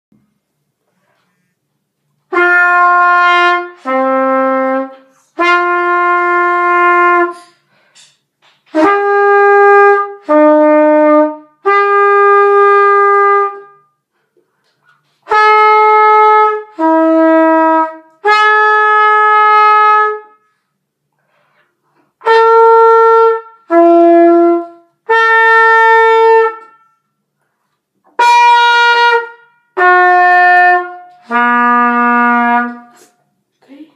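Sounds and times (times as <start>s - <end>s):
solo trumpet playing: 2.2s - 7.6s, 8.7s - 14.0s, 15.2s - 20.6s, 22.1s - 27.1s, 28.1s - 33.2s.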